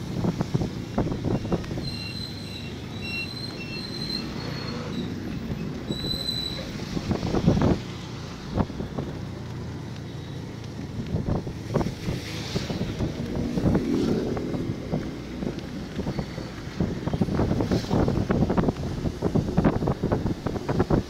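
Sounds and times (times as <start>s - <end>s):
tyres hissing on wet road: 0.0s - 21.0s
wind buffeting microphone: 6.7s - 9.6s, 10.6s - 21.0s.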